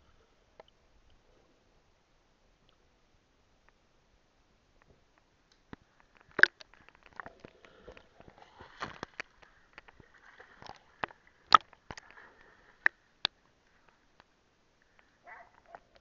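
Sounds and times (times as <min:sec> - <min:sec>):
faint water splashing: 0:04.7 - 0:16.0.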